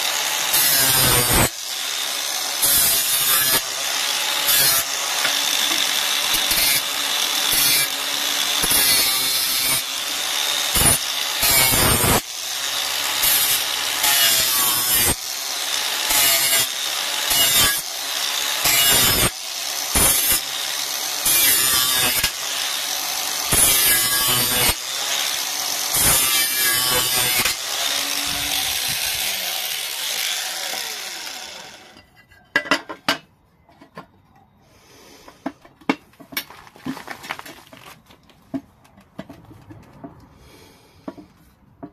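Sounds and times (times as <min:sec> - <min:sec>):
grinder winding down: 0:00.0 - 0:32.0
angle grinder grinding metal: 0:00.0 - 0:33.0.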